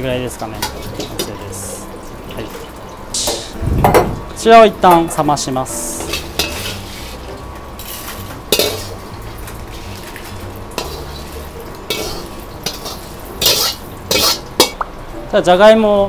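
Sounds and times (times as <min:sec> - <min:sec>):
low hum: 0:03.4 - 0:04.4
metal ladle scraping wok: 0:05.8 - 0:14.8.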